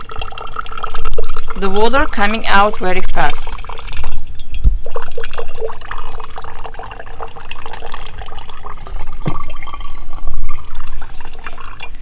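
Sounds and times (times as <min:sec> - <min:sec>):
water trickling and dripping: 0:00.0 - 0:12.0.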